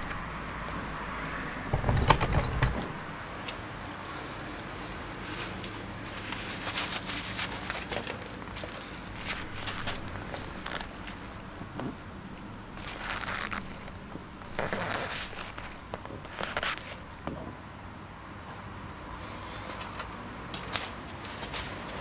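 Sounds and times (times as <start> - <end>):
metal clanking: 0.0 - 3.3
metal tools clinking and rattling: 0.8 - 3.1, 7.7 - 11.2.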